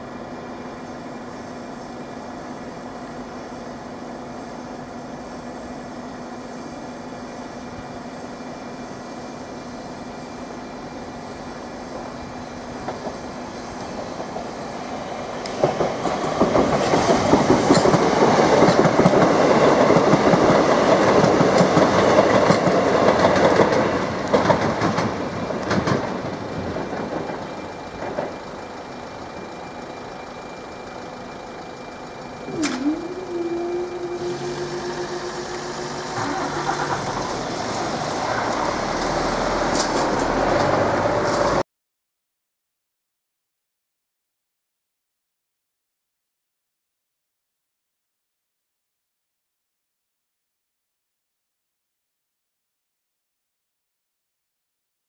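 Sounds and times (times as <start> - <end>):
train wheels clattering over rails: 15.4 - 28.9, 34.2 - 41.6.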